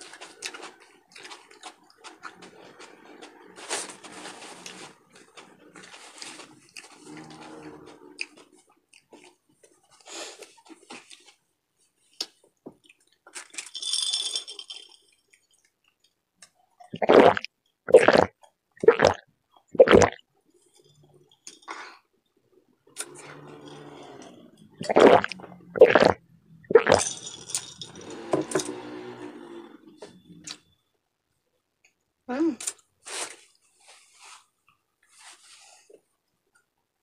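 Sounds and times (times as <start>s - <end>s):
quiet chewing and mouth noises: 4.6s - 13.4s, 15.0s - 16.9s
loud gulps swallowing a drink: 17.0s - 19.2s, 19.8s - 20.2s, 24.8s - 27.0s.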